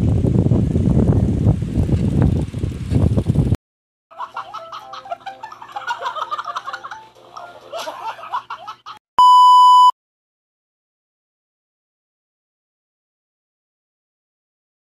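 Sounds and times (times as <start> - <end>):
wind buffeting the microphone: 0.0 - 3.6
high-pitched laughter: 4.2 - 9.0
test-tone beep: 9.2 - 9.9.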